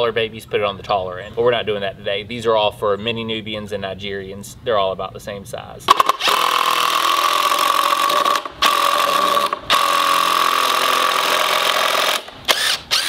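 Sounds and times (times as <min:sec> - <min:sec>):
impact driver driving screw into wood: 0:05.9 - 0:13.0.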